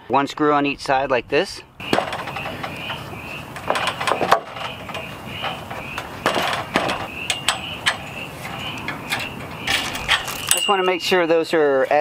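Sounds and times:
clicks and knocks of metal strap: 0:01.8 - 0:11.0.

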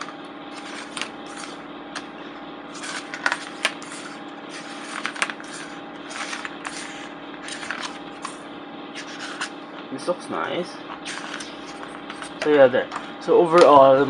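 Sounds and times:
book pages turning: 0:00.0 - 0:02.1, 0:02.7 - 0:08.4, 0:09.0 - 0:09.6, 0:10.9 - 0:12.6
low hum: 0:00.0 - 0:13.3.

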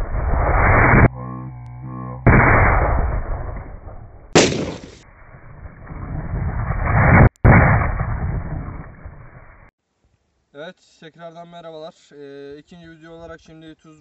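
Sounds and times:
brief tone: 0:00.9 - 0:02.2.

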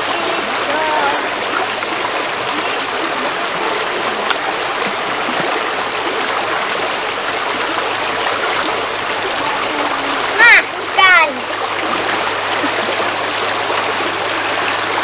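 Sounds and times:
river water rushing: 0:00.0 - 0:15.0.

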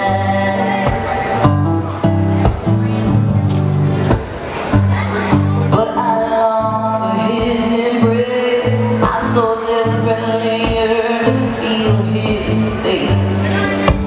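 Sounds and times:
woman singing: 0:00.0 - 0:01.6, 0:05.7 - 0:14.0
strummed acoustic guitar: 0:00.0 - 0:14.0.

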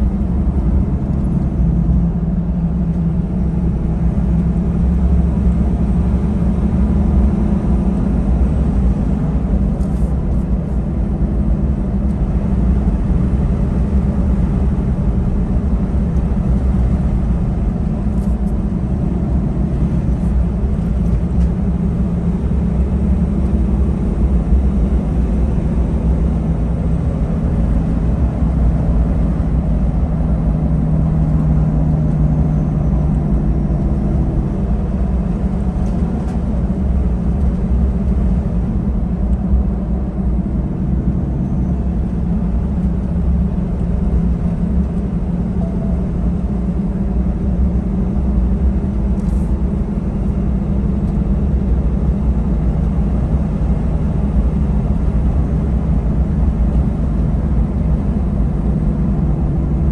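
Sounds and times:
truck engine and tyre rumble: 0:00.0 - 0:59.9.

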